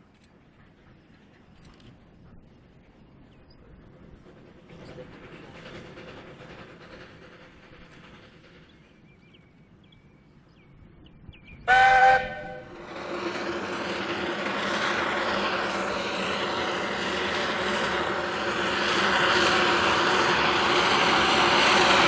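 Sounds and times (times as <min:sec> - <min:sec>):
steam locomotive working noise: 0:00.0 - 0:22.0
steam locomotive whistle blast: 0:11.7 - 0:12.7.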